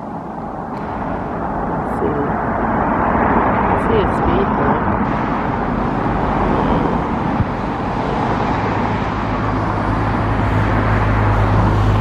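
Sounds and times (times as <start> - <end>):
low engine hum: 0.0 - 12.0
passing vehicles: 0.0 - 12.0.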